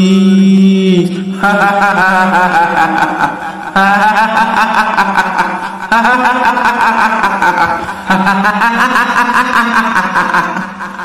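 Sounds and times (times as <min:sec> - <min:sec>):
woman's eerie quavering laugh: 0:01.4 - 0:11.0.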